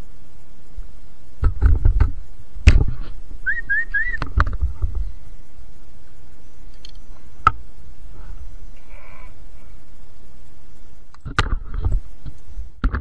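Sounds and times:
short whistled notes: 3.5 - 4.2.

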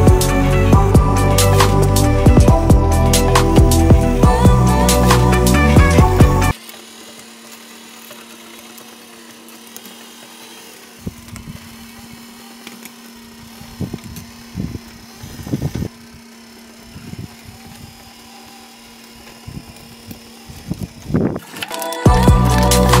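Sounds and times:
low rumbling bursts: 0.0 - 6.5
electric motor hum: 0.0 - 23.0.

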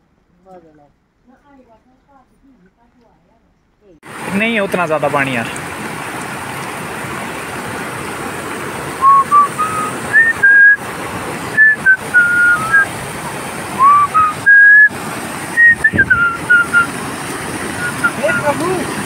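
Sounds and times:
floodwater rushing: 4.0 - 19.0
person whistling a tune: 9.0 - 10.8, 11.6 - 12.9, 13.8 - 14.9, 15.6 - 16.9.

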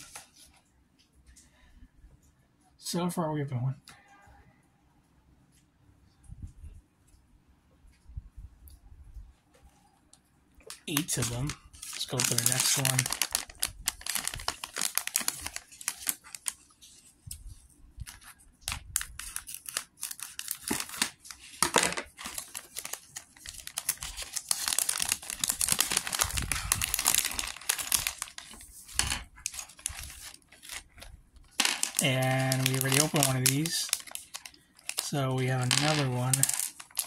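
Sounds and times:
plastic bag crinkling: 10.7 - 17.1, 18.0 - 37.0.

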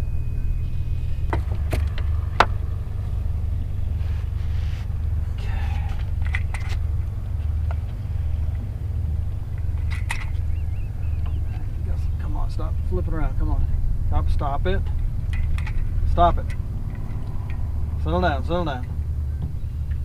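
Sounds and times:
steady low rumble: 0.0 - 20.0
handling clatter: 3.9 - 11.8, 14.8 - 20.0.

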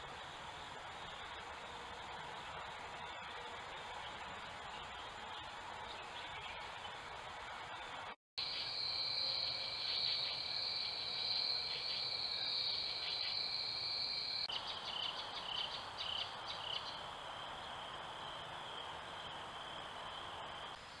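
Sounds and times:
crickets chirping: 6.8 - 21.0.

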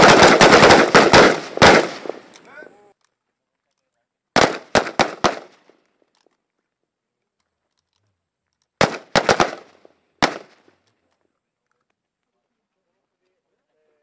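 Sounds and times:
rifle shots with echo: 0.0 - 2.4, 4.3 - 5.7, 8.8 - 10.7.

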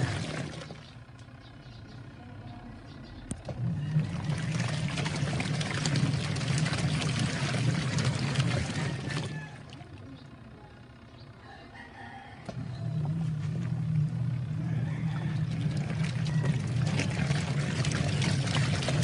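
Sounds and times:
water sloshing in washing machine: 0.0 - 1.2, 3.3 - 10.3, 12.4 - 19.0
washing machine motor hum: 0.0 - 19.0.

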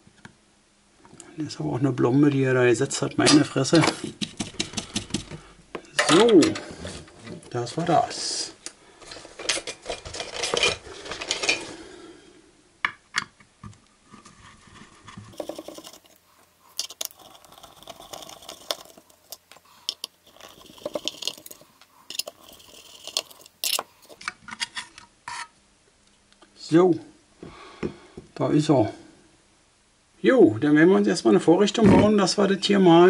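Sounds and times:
handling clatter: 15.3 - 24.2
screwdriver metallic clicks and scrapes: 15.3 - 25.5.

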